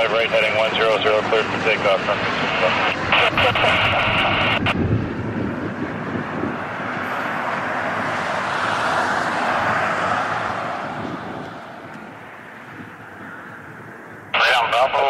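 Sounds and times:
airliner flying overhead: 0.0 - 15.0.

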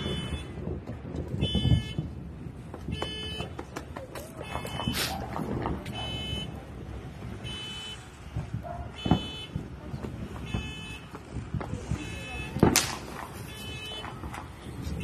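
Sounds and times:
high electronic alarm beeping: 0.0 - 0.5, 1.4 - 2.1, 5.9 - 6.6, 7.4 - 8.0, 10.4 - 11.1
firework pops: 8.2 - 14.9.

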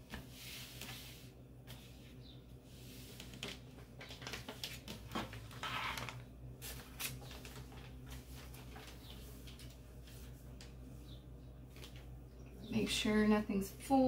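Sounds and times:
steady low hum: 0.0 - 14.0
paper and fabric rustling: 2.8 - 10.7.

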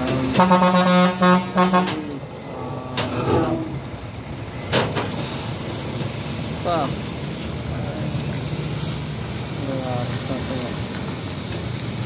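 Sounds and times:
truck engine: 0.0 - 12.0
truck horn blast: 0.1 - 2.2.

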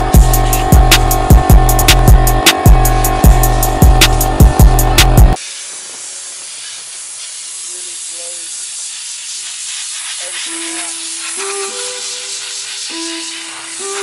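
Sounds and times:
background music: 0.0 - 5.4
compressed air blow gun hissing: 0.0 - 14.0.

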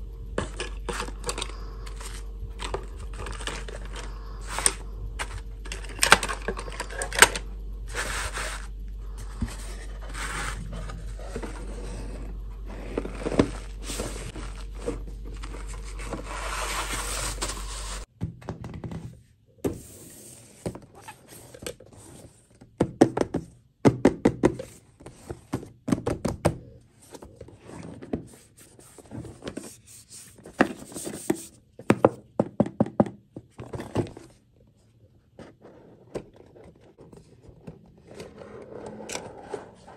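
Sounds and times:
steady low hum: 0.0 - 32.4, 33.3 - 39.9
plastic dolls rustling in a box: 0.4 - 18.1, 27.1 - 31.5.

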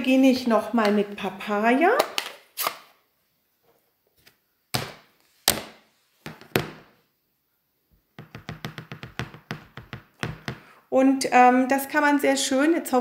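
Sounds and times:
hard plastic case knocks: 6.3 - 6.9, 8.2 - 10.6.

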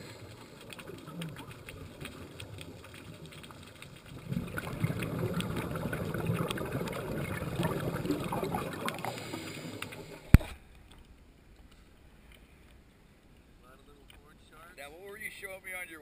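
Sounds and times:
scuba exhaust bubbles rushing: 0.0 - 10.5
fine underwater clicking: 0.0 - 14.3.

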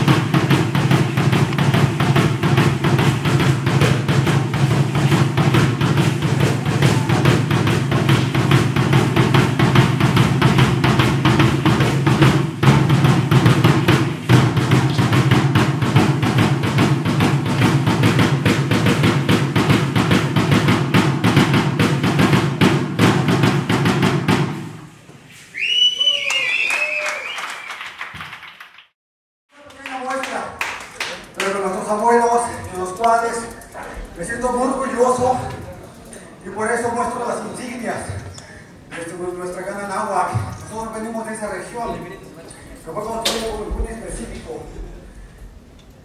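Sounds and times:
fast drumming: 0.0 - 24.7, 29.6 - 38.1.

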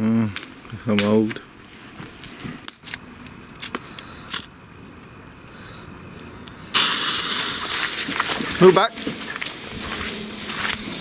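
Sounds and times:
bonfire crackling and popping: 0.0 - 11.0
firework hissing: 5.6 - 11.0.

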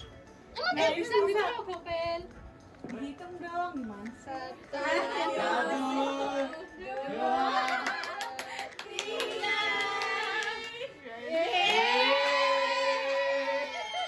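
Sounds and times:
hand claps: 7.6 - 10.9
people cheering and shrieking: 11.3 - 14.0.

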